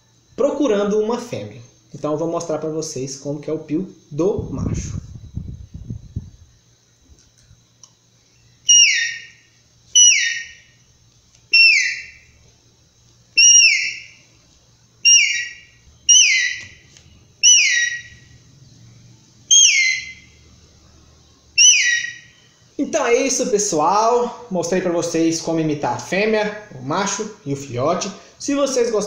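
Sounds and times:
downward sliding whistles: 8.7s - 9.4s, 10.0s - 10.6s, 11.5s - 12.2s, 13.4s - 14.2s, 15.0s - 16.7s, 17.4s - 18.2s, 19.5s - 20.3s.

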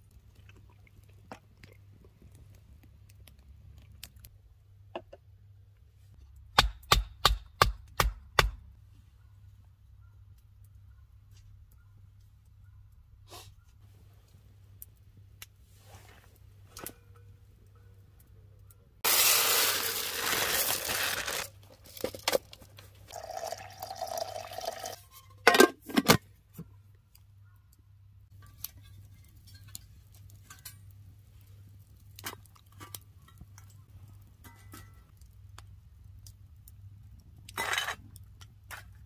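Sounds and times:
loud rustling tear: 19.0s - 22.5s.

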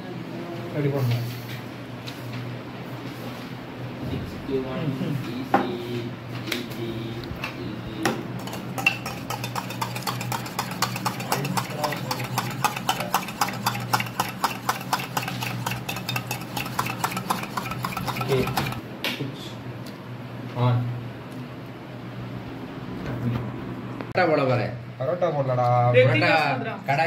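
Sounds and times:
utensil clicking against bowl: 8.4s - 18.8s.

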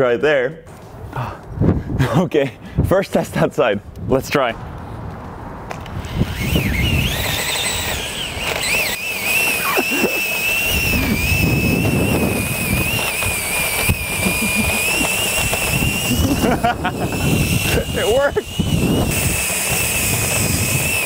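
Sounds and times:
scooter wheels rolling on asphalt: 4.5s - 21.0s
cordless drill motor whine: 5.8s - 21.0s.

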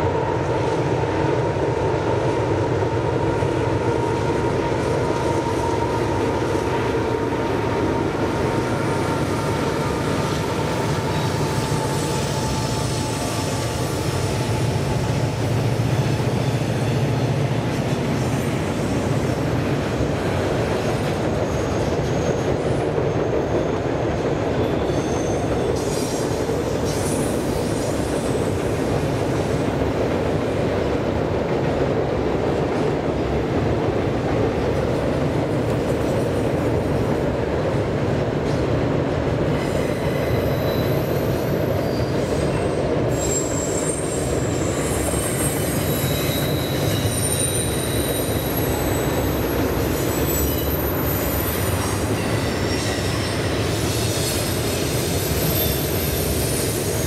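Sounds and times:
train wheels rumbling on rail: 0.0s - 57.0s
high wheel squeals: 7.9s - 15.1s, 24.4s - 28.6s, 39.6s - 57.0s.

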